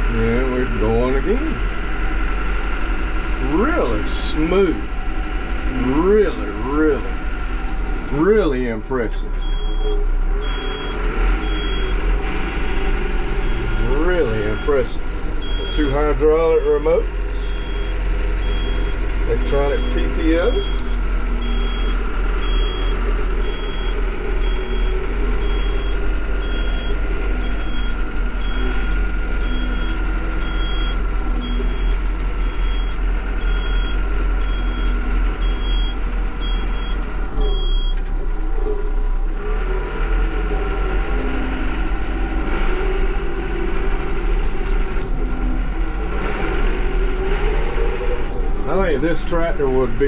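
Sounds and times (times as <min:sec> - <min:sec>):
tractor diesel engine running: 0:00.0 - 0:50.0
electronic warning beeper: 0:13.4 - 0:38.0.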